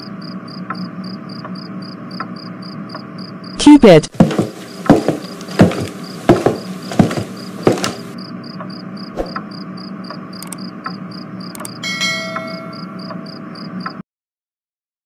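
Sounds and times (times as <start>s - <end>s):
crickets chirping: 0.0s - 11.8s, 12.4s - 14.0s
night ambience: 0.0s - 14.0s
heavy thumps: 4.2s - 8.2s
brief bright ringing: 11.8s - 13.0s.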